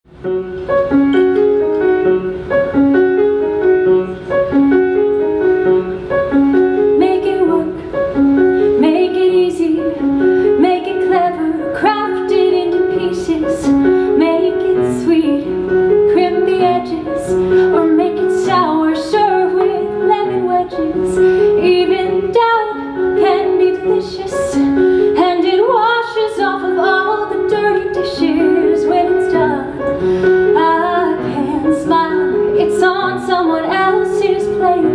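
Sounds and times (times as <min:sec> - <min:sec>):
grand piano playing: 0:00.1 - 0:34.9
woman singing: 0:06.8 - 0:07.9, 0:08.6 - 0:34.9.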